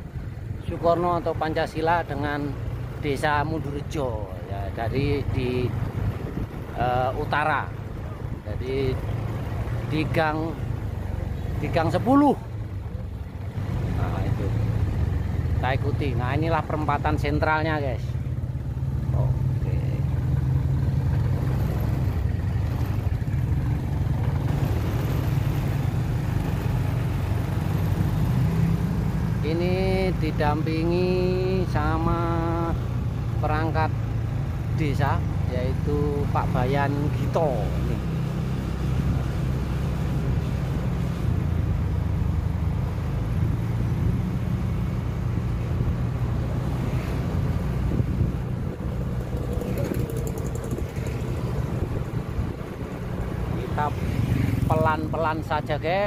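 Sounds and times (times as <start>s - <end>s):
road noise: 0.0s - 56.0s
vehicle engine running: 0.0s - 56.0s
wind on microphone: 47.4s - 53.6s.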